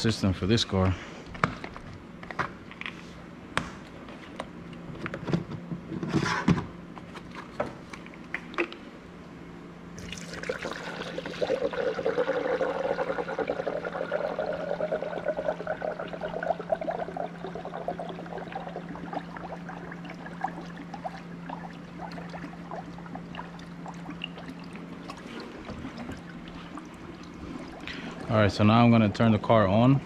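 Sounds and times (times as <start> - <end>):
steady low hum: 0.0 - 30.0
coolant being poured: 10.0 - 29.9.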